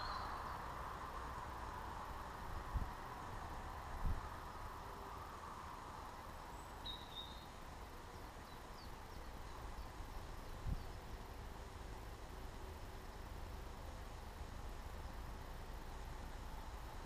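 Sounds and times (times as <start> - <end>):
low rumble and hiss: 0.0 - 17.0.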